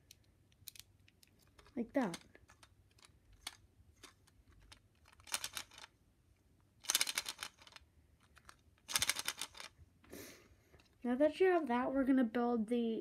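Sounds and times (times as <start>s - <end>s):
plastic bricks clicking: 0.0s - 5.9s, 6.8s - 9.7s.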